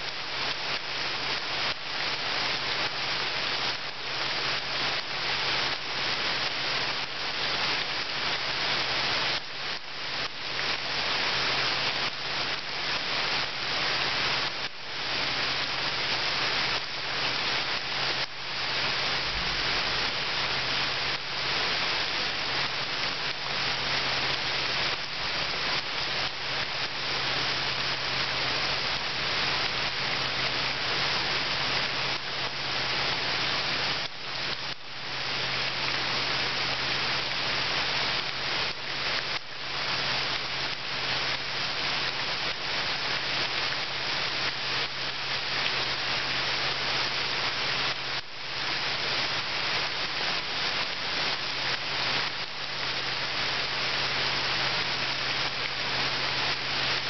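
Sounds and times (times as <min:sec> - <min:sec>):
rain falling into pool of water: 0:00.0 - 0:57.0.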